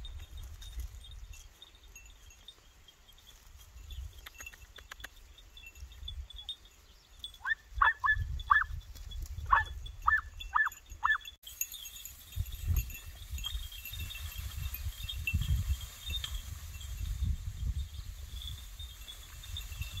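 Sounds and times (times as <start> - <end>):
puppy yelping: 7.4 - 8.7, 9.5 - 11.2.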